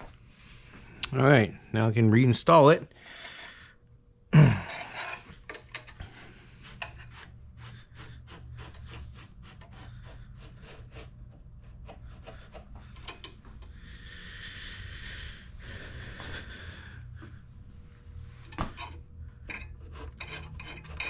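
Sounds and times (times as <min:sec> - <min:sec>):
cable rubbing scrapes and clicks: 0:05.0 - 0:13.4, 0:18.4 - 0:21.0.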